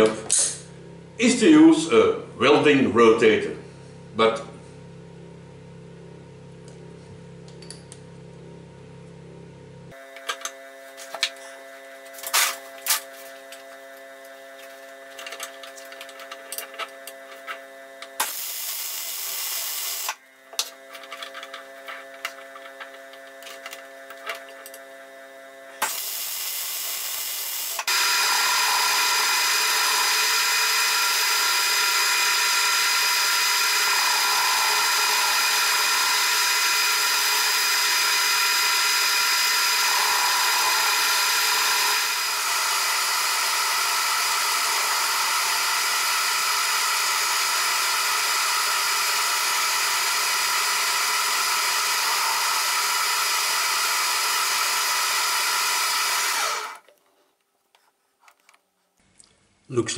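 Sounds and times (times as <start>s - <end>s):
welder arc: 18.2s - 20.2s, 25.8s - 56.8s
metal lathe running: 27.8s - 56.8s.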